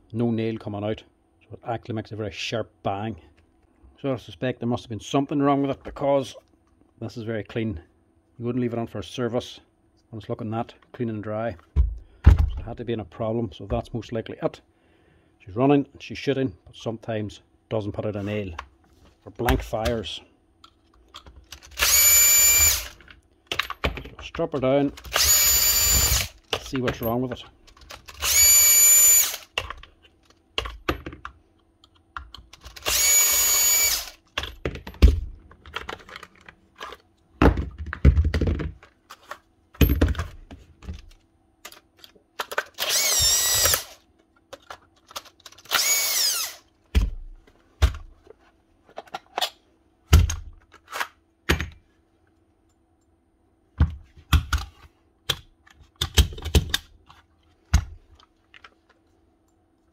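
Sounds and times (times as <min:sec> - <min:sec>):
clicks and knocks of parts: 0:20.6 - 0:22.0, 0:22.8 - 0:25.4, 0:26.0 - 0:28.2, 0:29.4 - 0:33.0, 0:34.2 - 0:46.0, 0:47.8 - 0:51.9, 0:53.8 - 0:59.0
power drill running: 0:21.8 - 0:23.0, 0:25.1 - 0:26.4, 0:28.2 - 0:29.5, 0:32.8 - 0:34.2, 0:42.8 - 0:44.0, 0:45.7 - 0:46.7.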